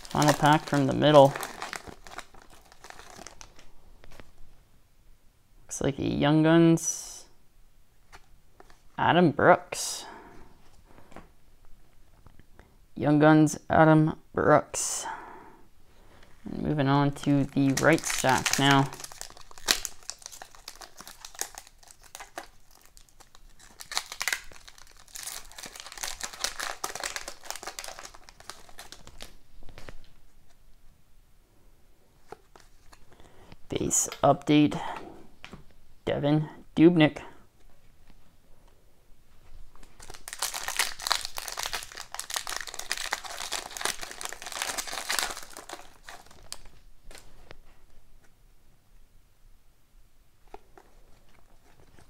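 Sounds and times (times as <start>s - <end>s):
foil wrapper crinkling and tearing: 0.0s - 3.7s, 17.2s - 30.0s, 39.7s - 47.3s.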